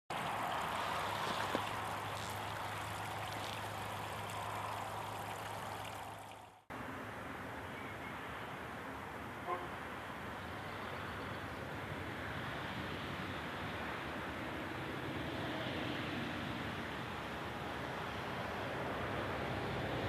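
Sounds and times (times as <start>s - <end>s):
background hiss: 0.1s - 6.7s
water rushing through channel: 0.1s - 6.7s.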